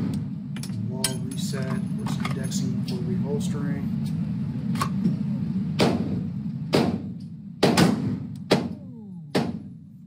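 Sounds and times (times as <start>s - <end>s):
low background rumble: 0.0s - 10.0s
pistol shots echoing indoors: 5.8s - 9.7s.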